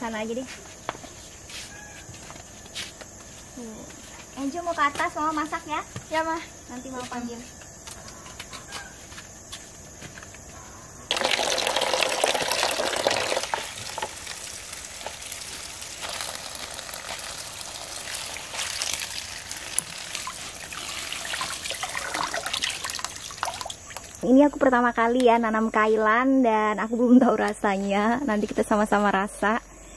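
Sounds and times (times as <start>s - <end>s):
hand rinsing leaves splashing: 11.1s - 24.2s
tap water running into a basin: 11.1s - 24.2s.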